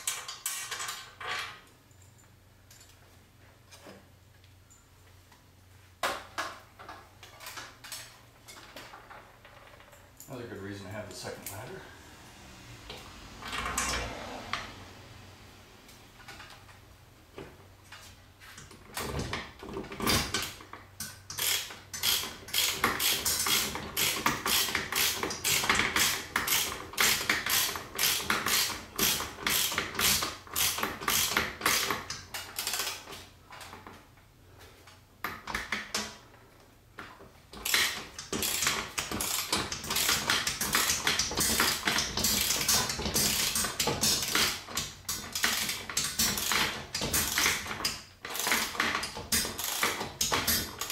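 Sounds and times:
ratchet wrench clicking: 20.4 - 33.1, 37.6 - 50.9.

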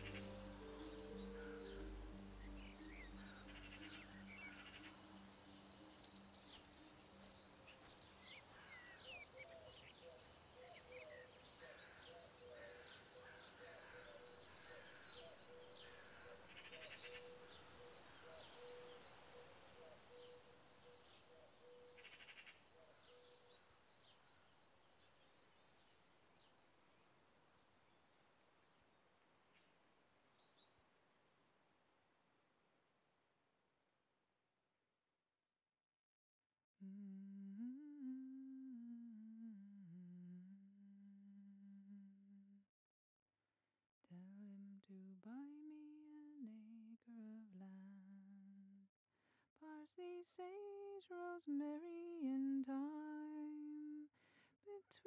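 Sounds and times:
music notes: 0.0 - 7.3
soft background hiss: 0.0 - 22.2
birds chirping and trilling: 0.0 - 22.5.

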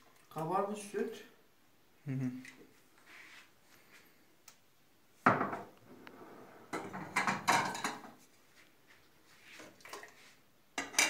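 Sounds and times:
plates clattering: 5.2 - 5.7, 6.7 - 8.2, 10.8 - 11.0.

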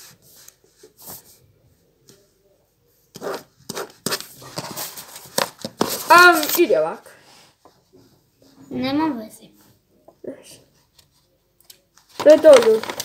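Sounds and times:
paper rustling: 3.2 - 6.9, 12.0 - 13.0.

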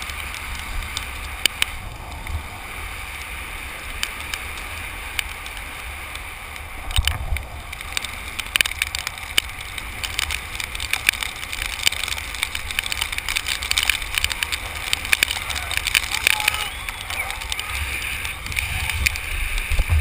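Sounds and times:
road rumble: 0.0 - 20.0
wind buffeting microphone: 0.0 - 20.0
sharp clicks and rattles: 6.9 - 20.0.

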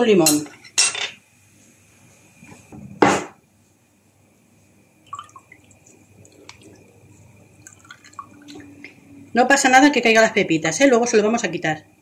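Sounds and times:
lemon juice dripping: 5.1 - 9.0.

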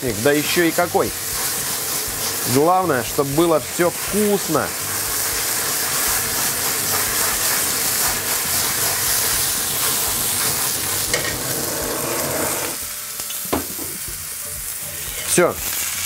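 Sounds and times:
meat sizzling in a frying pan: 0.0 - 16.0
butane torch blowing: 0.9 - 2.9, 3.8 - 13.9.

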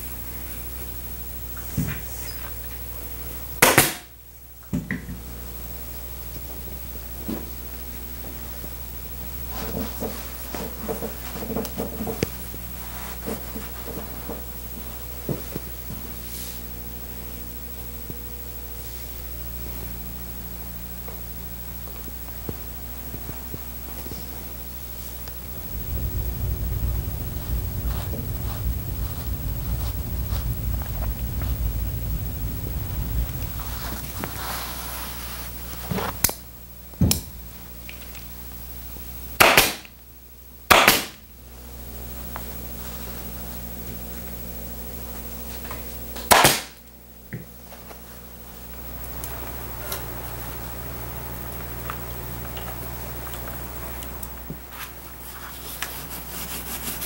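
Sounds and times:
low electrical hum: 0.0 - 57.0
pneumatic staple gun firing: 3.6 - 4.1, 39.4 - 39.9, 40.7 - 41.2, 46.3 - 46.8.

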